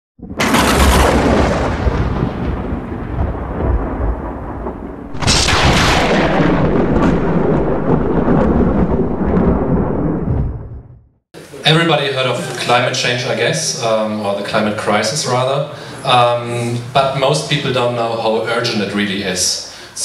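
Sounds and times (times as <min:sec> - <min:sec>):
thunder crash: 0:00.2 - 0:11.2
thunder rumbling: 0:00.2 - 0:11.2.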